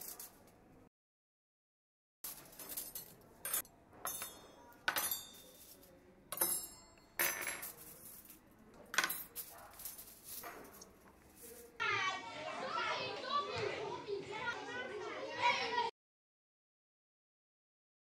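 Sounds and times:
cutlery and dishes clinking: 2.2s - 11.8s.

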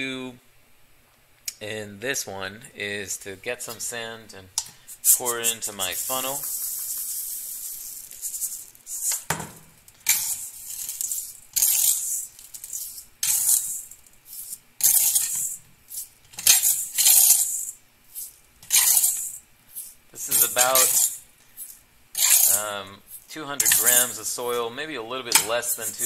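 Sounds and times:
sand grains rattling: 4.9s - 9.3s, 10.1s - 24.7s, 25.5s - 26.0s
sand pouring into plastic funnel: 5.0s - 9.1s.

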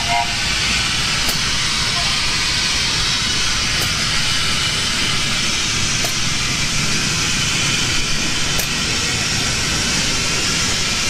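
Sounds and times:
steady hissing: 0.4s - 11.0s.

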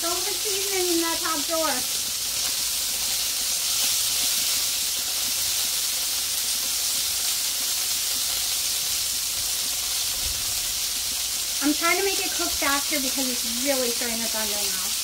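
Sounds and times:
patties sizzling on a griddle: 0.0s - 15.0s.

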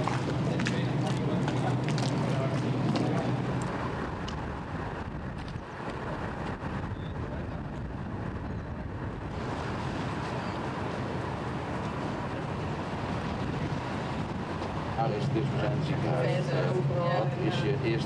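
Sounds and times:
boat engine: 0.0s - 18.0s
water rushing: 9.3s - 18.0s.

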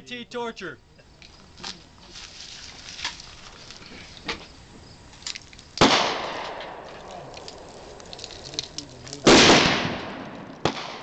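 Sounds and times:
loud gunshot with echo: 5.8s - 6.9s, 9.2s - 11.0s
gravel scooped by hand: 7.0s - 9.2s.

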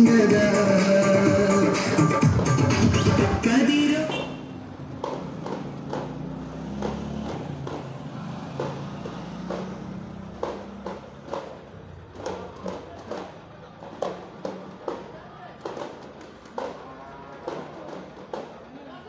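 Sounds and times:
sharp taps and knocks: 4.9s - 18.7s
indistinct crowd voices: 10.8s - 19.0s.

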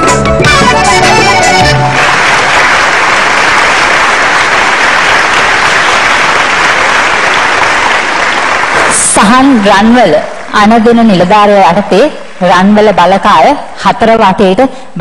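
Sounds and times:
audience applauding: 0.6s - 10.6s.

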